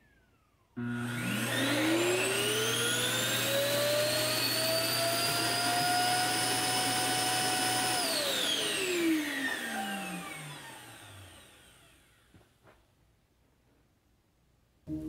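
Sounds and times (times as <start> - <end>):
suction motor whining: 0.8 - 12.3.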